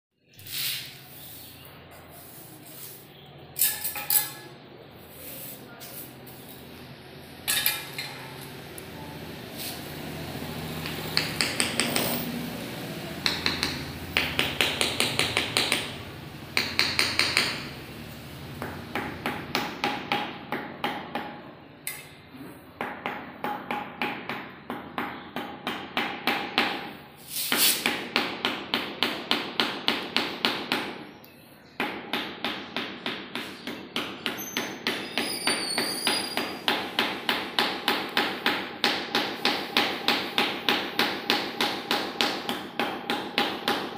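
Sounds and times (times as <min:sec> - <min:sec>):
small hammer tapping: 0:10.8 - 0:12.2, 0:13.2 - 0:15.9.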